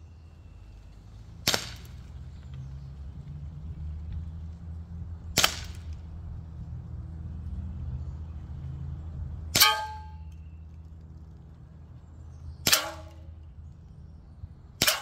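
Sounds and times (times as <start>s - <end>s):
bb pistol cracks: 1.4s - 2.0s, 5.3s - 6.0s, 12.6s - 13.2s
bb striking metal: 9.6s - 10.4s.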